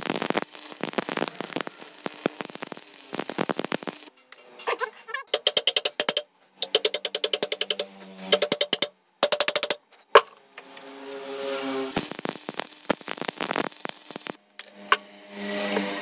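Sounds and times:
crackling hiss with clicks: 0.0s - 4.1s, 11.9s - 14.4s
hammer tapping ringing steel bar: 5.3s - 10.4s.

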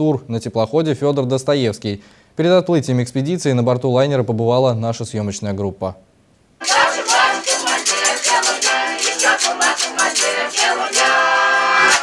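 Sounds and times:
button accordion: 6.6s - 12.0s
steady rhythmic beat: 6.6s - 12.0s
women singing: 6.6s - 12.0s.

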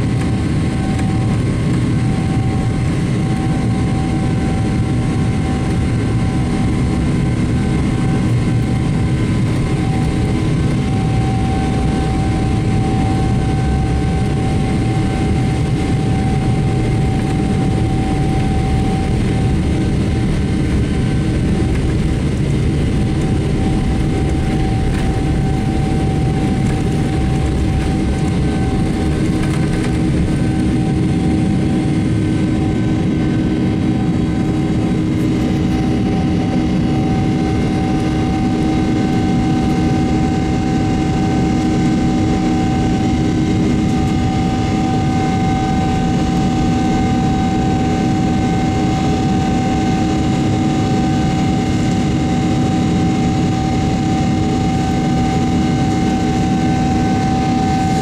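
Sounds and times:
jet engines roaring with whine: 0.0s - 58.0s
wheels rumbling on runway: 4.3s - 39.8s.

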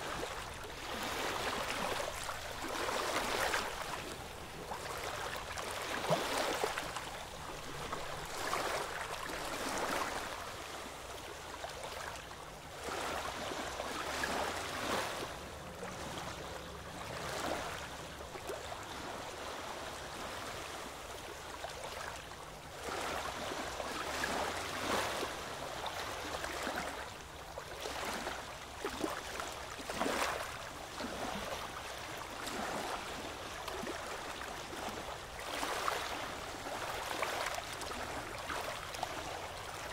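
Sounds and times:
oars splashing through water: 0.0s - 12.1s, 12.8s - 20.7s, 21.7s - 39.9s
water lapping along hull: 0.0s - 39.9s.

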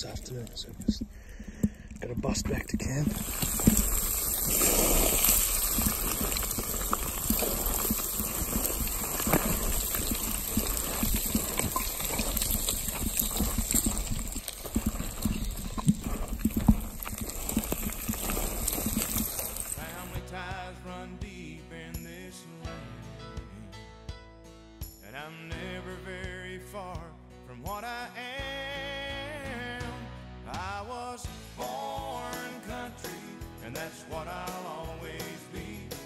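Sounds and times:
boots crunching on scree: 0.0s - 20.2s.

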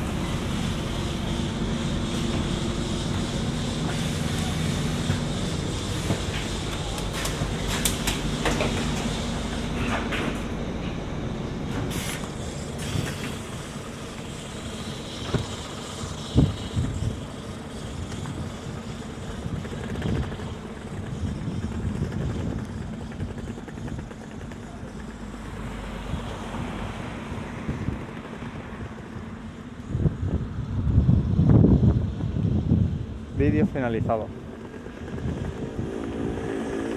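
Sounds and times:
bus engine hum: 0.0s - 36.9s
short hisses of air: 11.9s - 13.6s.

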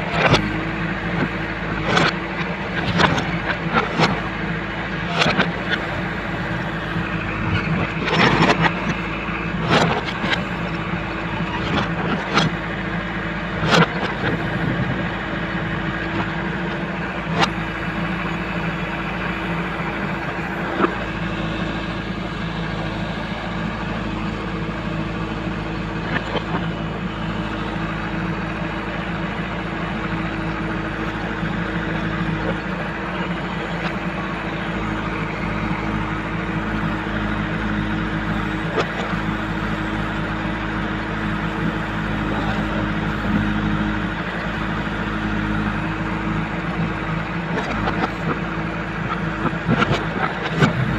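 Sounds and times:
diesel engine running under load: 0.0s - 50.9s.

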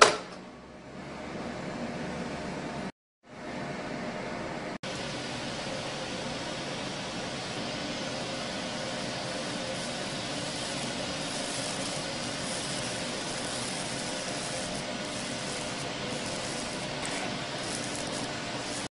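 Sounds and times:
laser cutter hissing: 4.9s - 18.9s.

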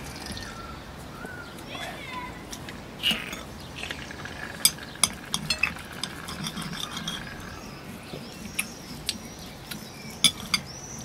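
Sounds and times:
cutlery scraping on plates: 4.5s - 7.7s.

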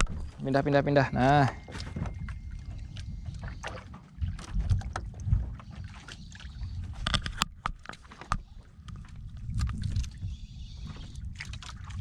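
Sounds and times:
water slapping against boat hull: 0.0s - 12.0s
wind buffeting microphone: 0.0s - 12.0s.

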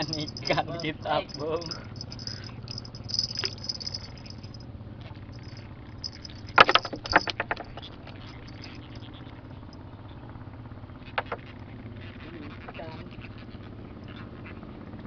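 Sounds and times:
rattling knocks: 0.0s - 4.6s, 5.4s - 9.0s, 11.2s - 11.4s.

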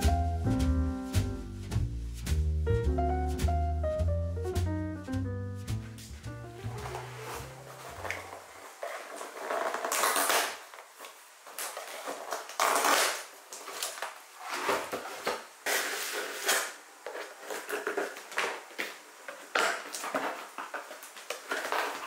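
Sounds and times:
box cutter slitting packing tape: 9.1s - 10.6s, 11.6s - 15.0s, 15.7s - 16.8s.

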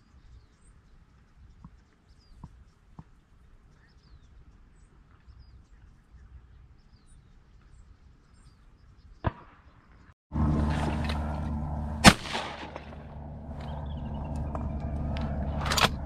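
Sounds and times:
shotgun blast: 9.2s - 9.7s, 12.0s - 13.2s.

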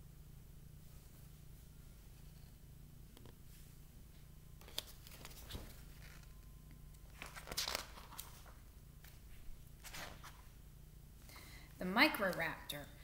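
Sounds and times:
faint low hum: 0.0s - 13.0s
book pages rustling: 4.6s - 6.4s, 7.0s - 10.5s.

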